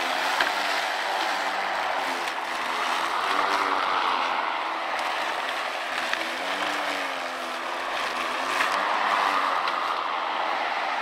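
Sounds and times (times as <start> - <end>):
lawn mower blade whirring: 0.0 - 11.0.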